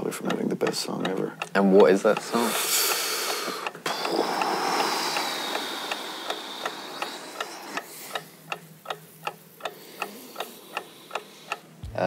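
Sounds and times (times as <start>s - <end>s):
clock ticking: 0.0s - 12.0s
hiss: 2.4s - 8.2s.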